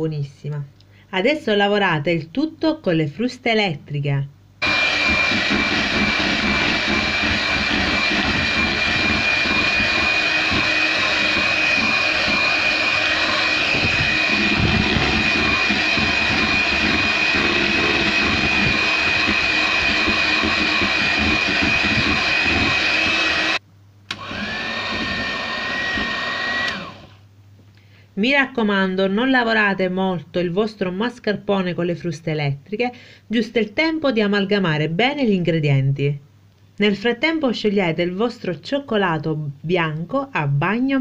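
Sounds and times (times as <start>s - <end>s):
electric hand mixer whining: 4.6s - 27.2s.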